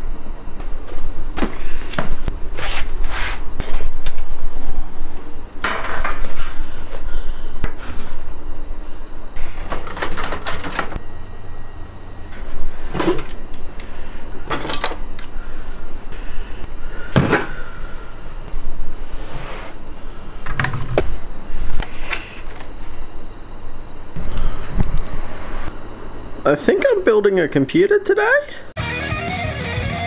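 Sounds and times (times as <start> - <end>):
computer parts knocking and clattering: 9.7 - 11.0.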